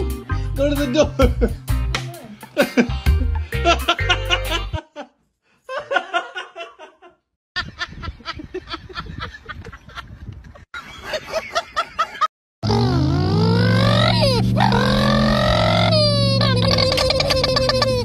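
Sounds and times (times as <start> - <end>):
music: 0.0 - 4.8
person snickering laugh: 2.5 - 3.0, 15.7 - 18.0.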